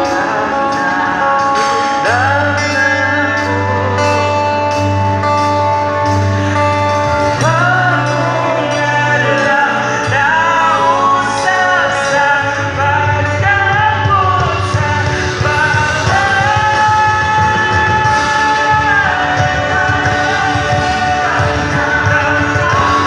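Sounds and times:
bass line: 0:00.0 - 0:23.0
electric guitar: 0:00.0 - 0:23.0
person singing: 0:00.0 - 0:23.0
drums with cymbal strikes: 0:12.8 - 0:23.0.

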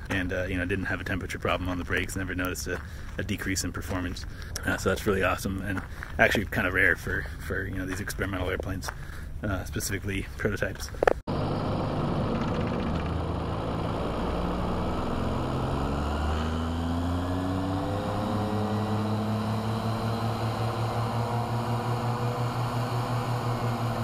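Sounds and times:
aircraft engine and propeller running: 0:11.3 - 0:24.0.

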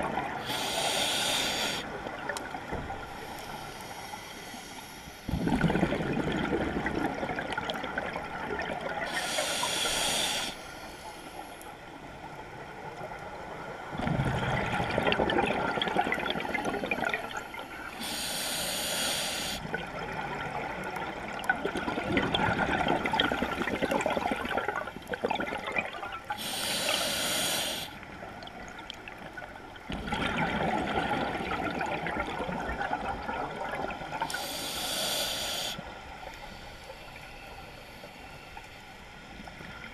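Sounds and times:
exhaled air bubbling: 0:00.0 - 0:03.4, 0:05.3 - 0:10.5, 0:13.9 - 0:35.8
regulator inhale hiss: 0:00.4 - 0:02.0, 0:03.1 - 0:05.4, 0:09.1 - 0:11.8, 0:16.8 - 0:19.7, 0:26.3 - 0:28.1, 0:34.2 - 0:39.4.

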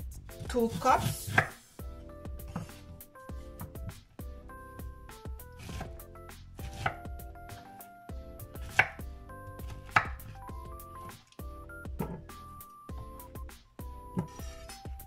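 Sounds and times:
background music: 0:00.0 - 0:15.0
knife chopping on wooden board: 0:00.3 - 0:01.6, 0:02.4 - 0:02.9, 0:05.5 - 0:05.9, 0:06.6 - 0:07.7, 0:08.5 - 0:10.4, 0:12.0 - 0:12.3, 0:14.1 - 0:15.0.

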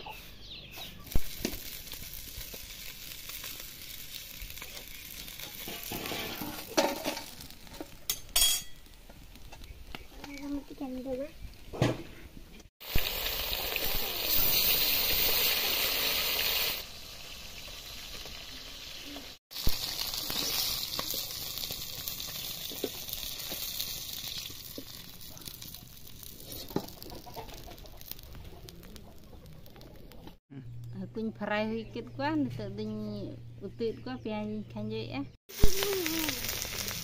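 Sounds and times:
fish sizzling in hot oil: 0:01.1 - 0:09.8, 0:12.8 - 0:30.2, 0:35.5 - 0:37.0.

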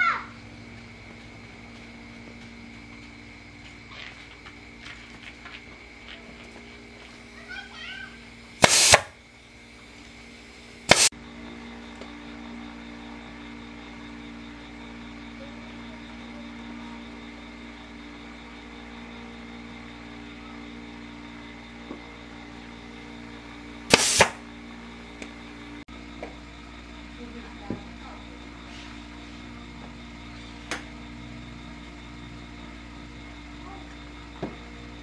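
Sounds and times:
steady low hum: 0:00.0 - 0:35.0
staple gun firing: 0:08.6 - 0:09.1, 0:23.9 - 0:24.4.

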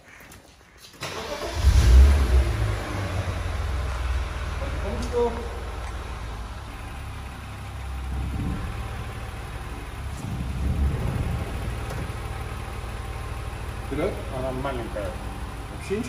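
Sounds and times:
car engine idling: 0:01.0 - 0:16.0.

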